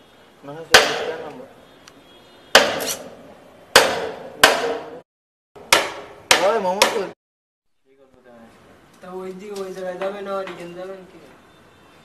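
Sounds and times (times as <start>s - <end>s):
hammer striking wooden plank: 0.7s - 1.4s, 2.5s - 3.1s, 3.7s - 5.0s, 5.6s - 7.2s.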